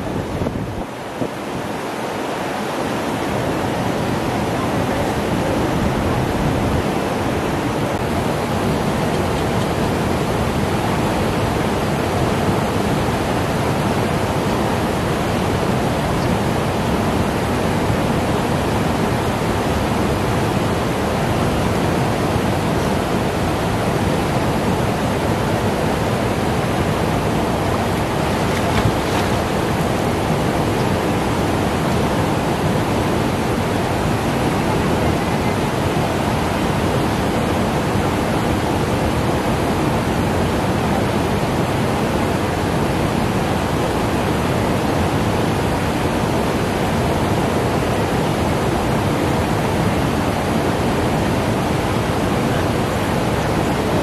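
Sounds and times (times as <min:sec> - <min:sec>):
river rushing around rocks: 0:00.0 - 0:54.0
water splash: 0:27.4 - 0:32.0.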